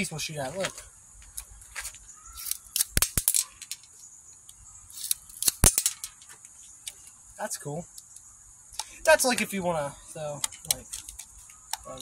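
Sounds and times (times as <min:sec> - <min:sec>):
bb gun metallic clicks and rattles: 0:02.4 - 0:03.9, 0:05.0 - 0:06.3, 0:10.4 - 0:11.9.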